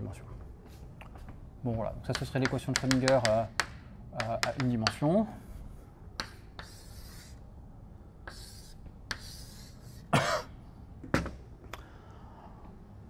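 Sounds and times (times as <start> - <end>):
chalk scraping on blackboard: 6.2 - 7.4, 8.3 - 10.1
person coughing: 10.1 - 10.6.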